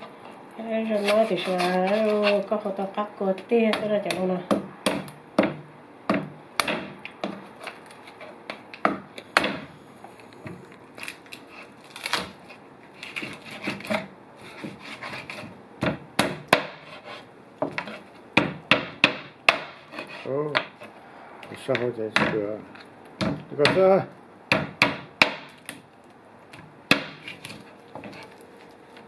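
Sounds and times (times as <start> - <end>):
knife chopping on wooden board: 3.7 - 9.7, 13.0 - 20.9, 21.7 - 22.5, 23.2 - 25.8, 26.6 - 28.4.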